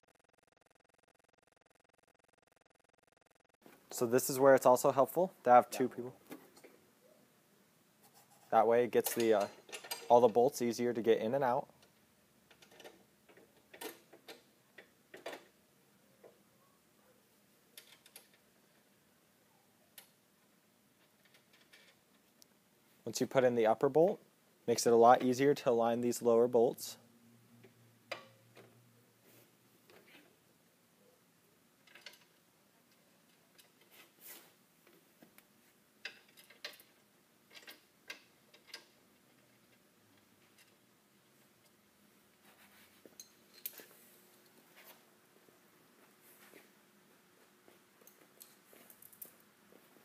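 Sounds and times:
metal parts clicking: 0:09.0 - 0:10.4, 0:17.8 - 0:18.4, 0:31.8 - 0:33.8, 0:36.0 - 0:39.0.

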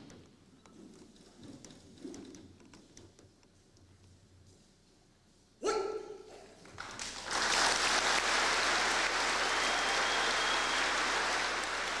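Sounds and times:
large audience applauding: 0:06.7 - 0:12.0
high whistle from crowd: 0:09.4 - 0:12.0.

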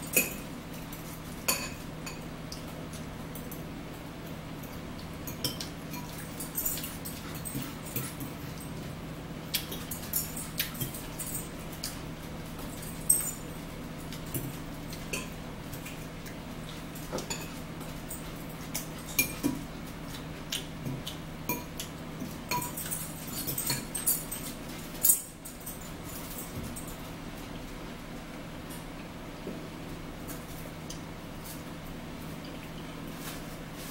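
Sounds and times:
forks clinking against plates: 0:00.0 - 0:03.7, 0:04.6 - 0:08.9, 0:09.5 - 0:12.0, 0:12.6 - 0:16.0, 0:16.7 - 0:27.0
steady low hum: 0:00.0 - 0:33.9.

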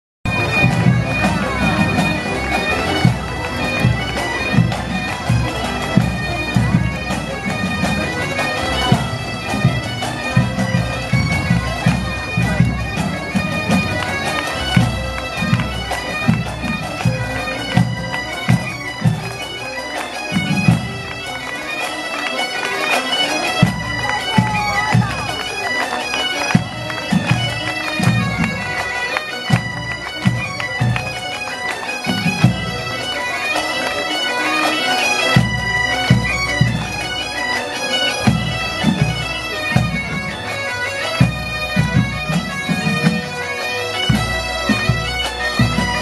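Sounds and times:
bagpipes playing a tune: 0:00.3 - 0:46.0
drums beating march rhythm: 0:00.3 - 0:46.0.

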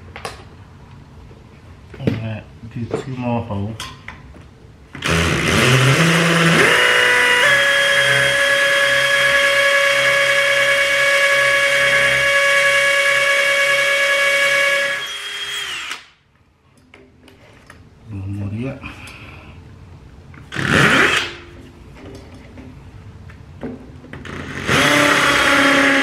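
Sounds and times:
drill boring into brick: 0:05.0 - 0:16.1, 0:20.5 - 0:21.4, 0:24.2 - 0:26.0.

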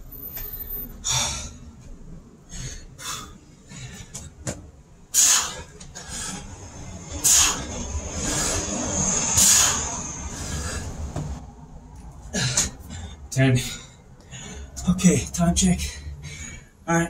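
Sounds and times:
man breathing hard: 0:00.9 - 0:04.4, 0:05.1 - 0:11.4, 0:12.2 - 0:14.8, 0:15.8 - 0:16.9.

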